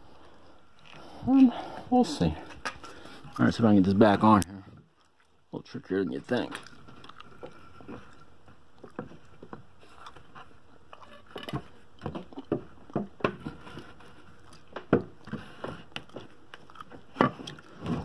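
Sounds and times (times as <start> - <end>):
wooden knocks and scrapes: 11.3 - 15.9.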